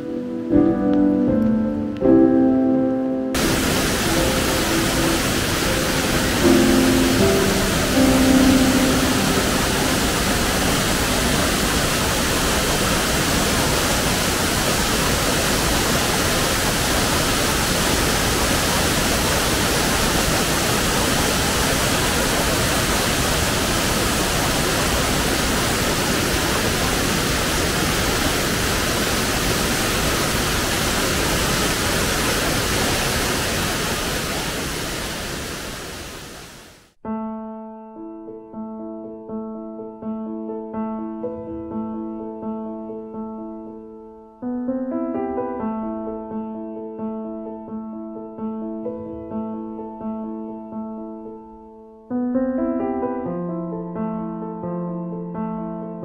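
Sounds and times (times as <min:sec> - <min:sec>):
piano music: 0:00.0 - 0:28.6, 0:37.0 - 0:56.0
waterfall rushing: 0:03.4 - 0:36.9.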